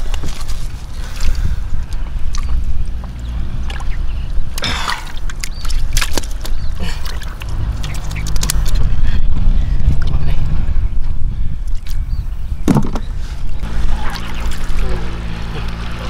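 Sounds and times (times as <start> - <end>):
water sloshing and splashing: 0.0 - 9.0, 12.6 - 16.0
low rumble: 6.6 - 16.0.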